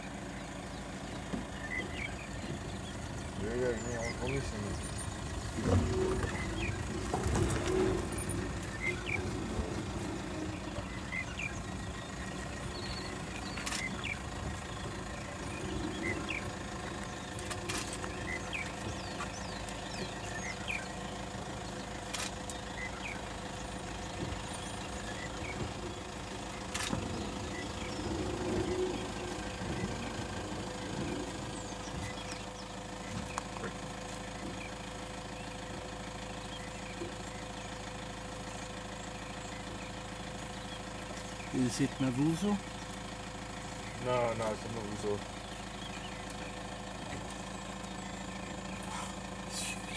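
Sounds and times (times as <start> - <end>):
birds chirping: 0.0 - 49.9
vehicle engine idling: 0.0 - 49.9
sharp clicks: 13.5 - 14.0, 22.1 - 22.6, 26.7 - 27.1.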